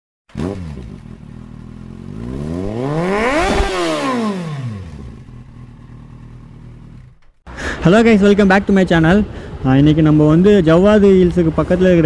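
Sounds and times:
motorcycle engine revving: 0.3 - 7.4.

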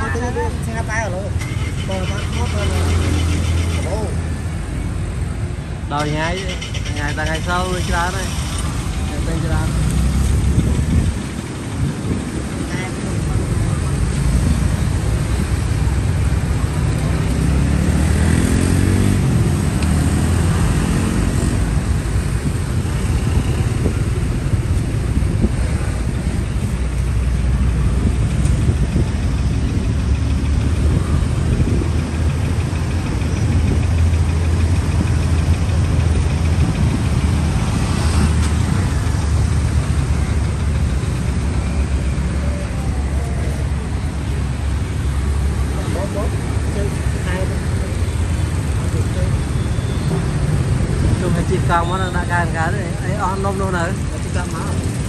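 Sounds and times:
vehicle engines running: 0.0 - 55.0
engine revving: 16.7 - 22.2.

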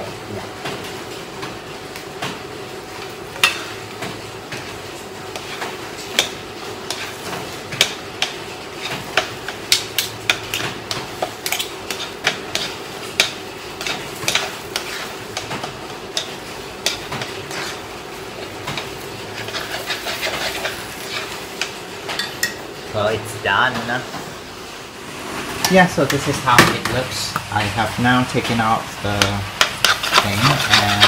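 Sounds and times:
utensil knocking and scraping dish: 29.2 - 31.0.

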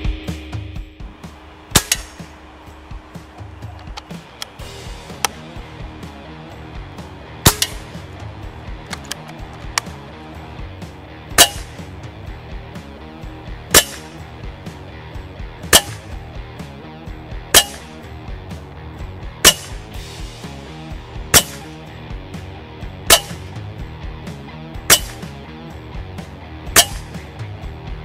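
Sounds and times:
background music: 0.0 - 28.0
air rifle shots: 1.6 - 2.6, 7.4 - 8.1, 11.3 - 11.9, 13.6 - 14.3, 15.6 - 16.2, 17.5 - 18.0, 19.4 - 20.0, 21.3 - 21.9, 23.0 - 23.6, 24.8 - 25.4, 26.7 - 27.2.

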